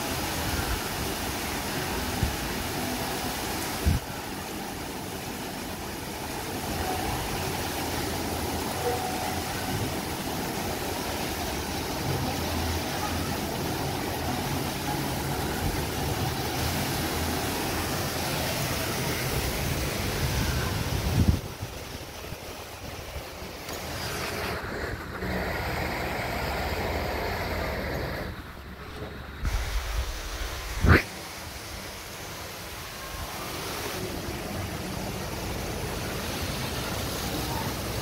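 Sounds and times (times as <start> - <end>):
water jets splashing into pool: 0.0 - 38.0.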